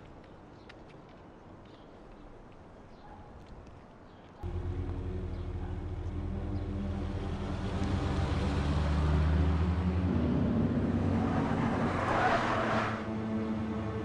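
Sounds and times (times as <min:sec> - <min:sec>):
car engine hum: 0:04.4 - 0:14.0.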